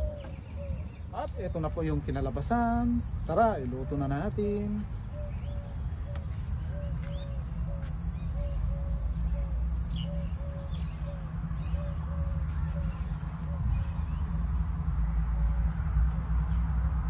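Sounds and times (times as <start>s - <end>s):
bird hooting: 0.0s - 1.1s, 3.6s - 15.8s
low rumble: 0.0s - 17.0s.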